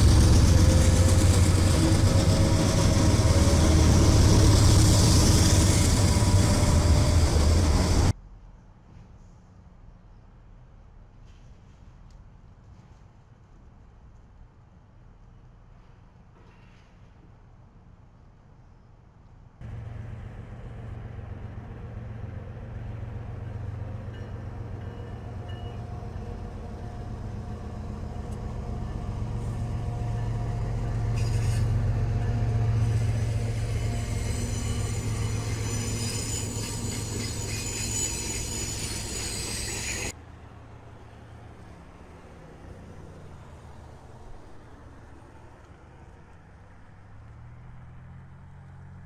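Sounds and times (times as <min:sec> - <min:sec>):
wheels squealing on rail: 0:00.0 - 0:08.1, 0:21.9 - 0:40.2
train rumbling past: 0:00.0 - 0:08.2, 0:19.6 - 0:49.0.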